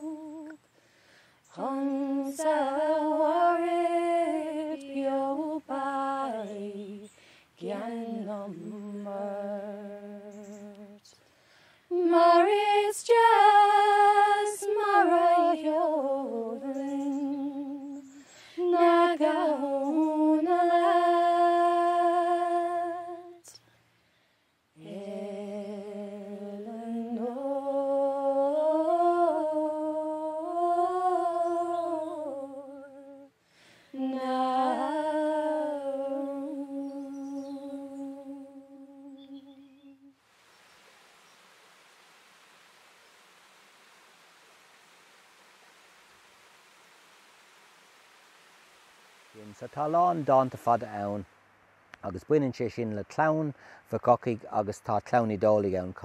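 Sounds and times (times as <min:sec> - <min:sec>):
young woman singing: 0:00.0 - 0:00.6, 0:01.5 - 0:11.1, 0:11.9 - 0:23.6, 0:24.8 - 0:40.2
boy singing: 0:01.6 - 0:11.0, 0:11.9 - 0:23.6, 0:34.0 - 0:39.7.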